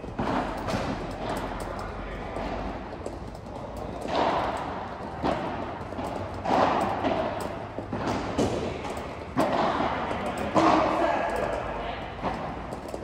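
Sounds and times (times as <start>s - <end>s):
padel ball hit by rackets: 4.0s - 11.0s.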